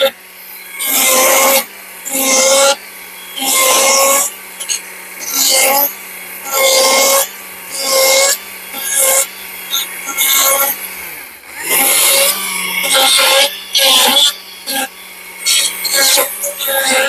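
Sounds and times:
chainsaw cutting into wood: 0.0s - 17.0s
chainsaw motor whirring: 0.0s - 17.0s.

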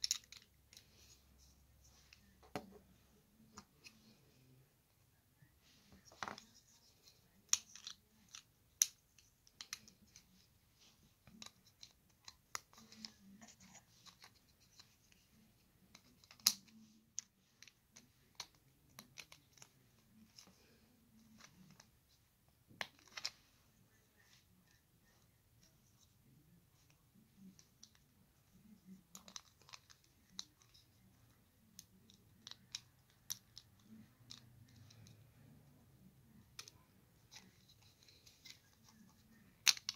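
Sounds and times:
plastic bricks clicking together: 0.0s - 0.8s, 7.5s - 10.0s, 15.9s - 19.7s, 31.8s - 35.0s, 39.6s - 39.9s.

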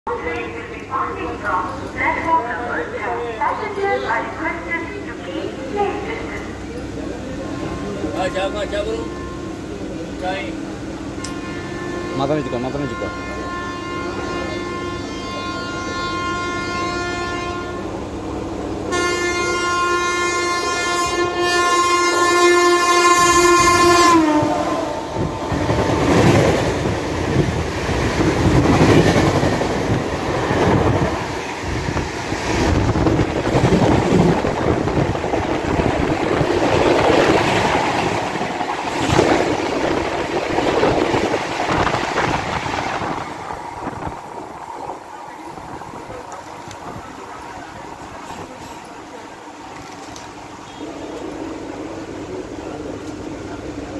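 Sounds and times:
train coaches rushing past: 0.1s - 53.9s
train horn blasts: 7.5s - 9.7s, 11.1s - 18.2s, 18.8s - 27.4s.

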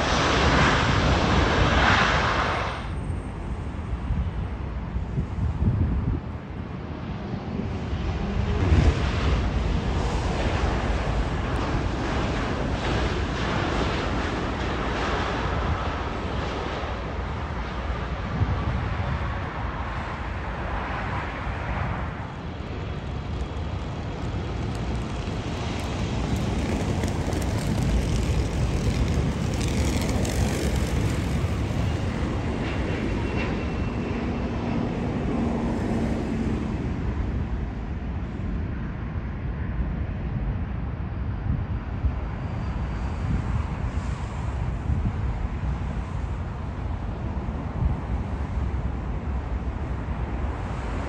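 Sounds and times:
jet engines rumbling and whining: 6.1s - 38.7s.

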